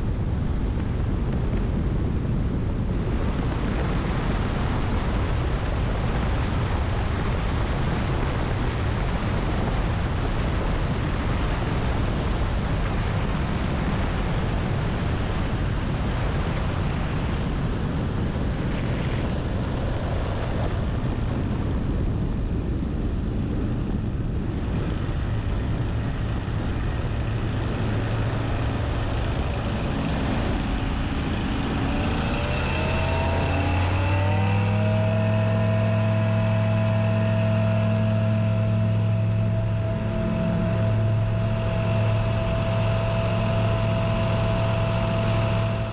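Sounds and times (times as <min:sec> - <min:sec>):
floatplane engine drone: 0:00.0 - 0:45.9
wind rushing: 0:22.4 - 0:45.9.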